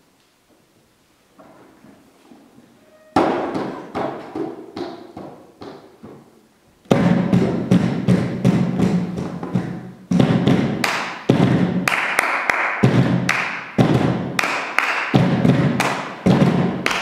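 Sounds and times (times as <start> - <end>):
hollow thuds on plastic boxes: 6.9 - 11.8
hand claps: 10.8 - 17.0.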